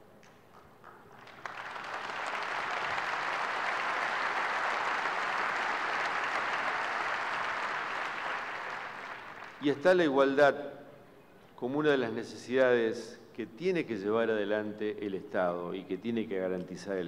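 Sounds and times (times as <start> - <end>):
audience applauding: 0.5 - 9.8.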